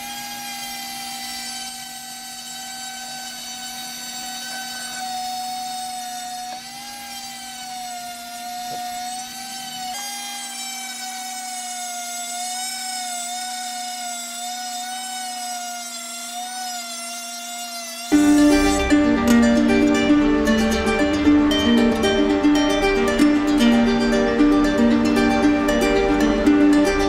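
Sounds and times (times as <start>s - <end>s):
rotary tool whining: 0.0s - 27.0s
ukulele music: 18.1s - 27.0s.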